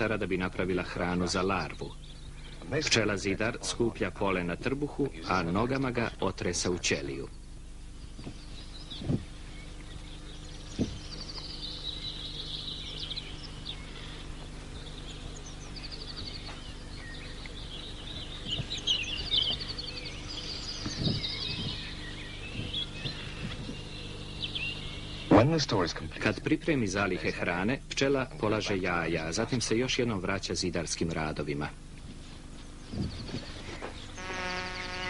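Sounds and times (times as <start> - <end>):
small birds singing: 0.0 - 35.0
steady low hum: 0.0 - 35.0
soft low thumps: 7.4 - 25.4, 32.0 - 34.1.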